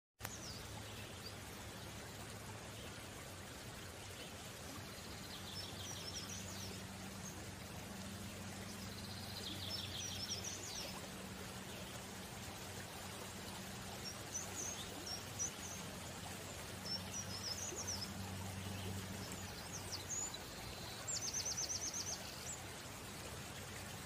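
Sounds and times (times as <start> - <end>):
steady background hiss: 0.2 - 24.0.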